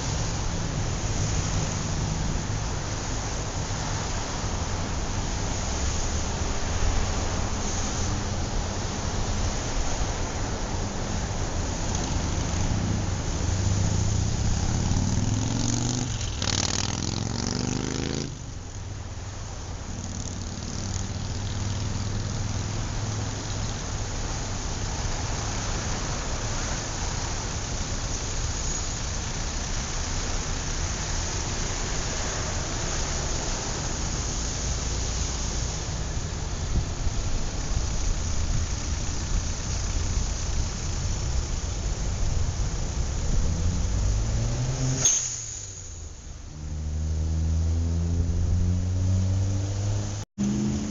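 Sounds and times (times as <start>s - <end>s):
street traffic: 0.0s - 50.9s.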